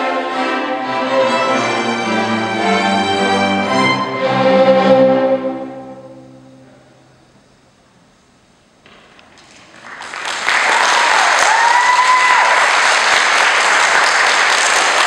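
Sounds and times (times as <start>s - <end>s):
audience applause: 9.3s - 15.0s.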